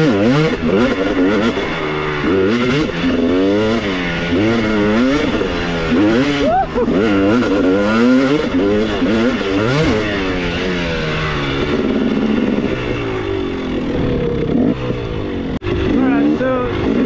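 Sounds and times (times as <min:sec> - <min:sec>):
dirt bike engine revving: 0:00.0 - 0:17.0.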